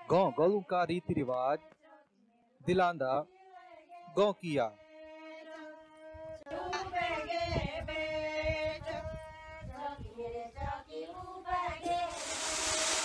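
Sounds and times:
loud steady rushing hiss: 11.9s - 13.0s.

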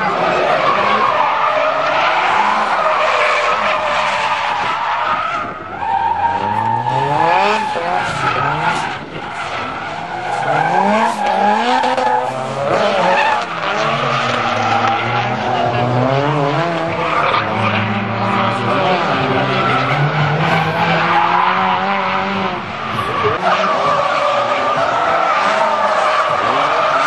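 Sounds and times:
car engine revving hard: 5.4s - 27.0s.

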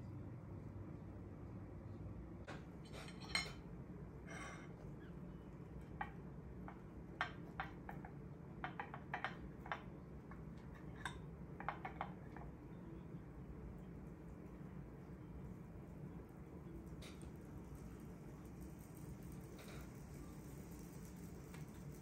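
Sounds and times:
knife and fork clinking on a plate: 2.8s - 3.6s, 10.8s - 12.4s.

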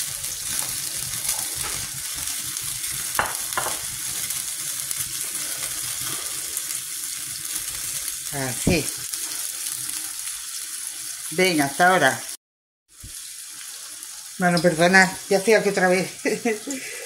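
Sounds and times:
pan sizzling: 0.0s - 17.0s.

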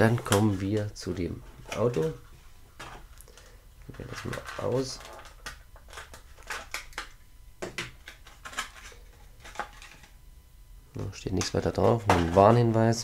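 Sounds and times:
plastic blister tray crackling: 0.0s - 2.2s, 2.8s - 10.2s.

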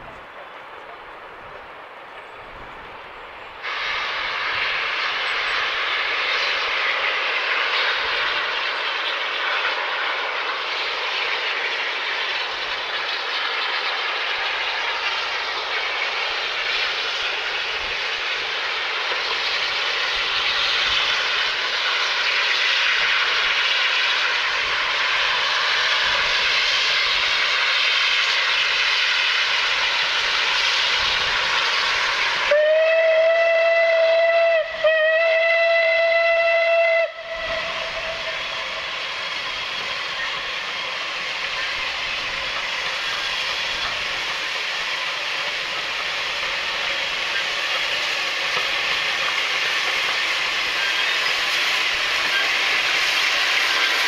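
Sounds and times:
steam locomotive exhaust roar: 0.0s - 54.0s
locomotive whistle blasts: 32.5s - 39.0s.

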